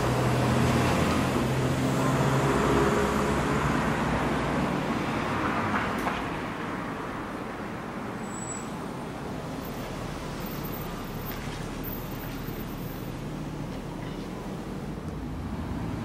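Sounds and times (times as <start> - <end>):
street noise hiss: 0.0 - 16.0
vehicle engine humming: 8.7 - 16.0.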